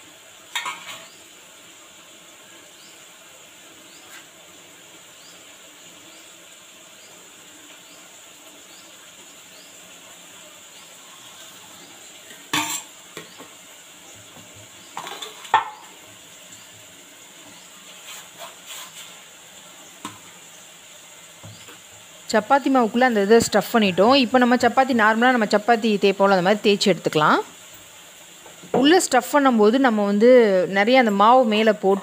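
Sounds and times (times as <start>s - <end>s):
faint steady hiss: 0.0s - 32.0s
metal bowl knocking on counter: 15.0s - 15.8s.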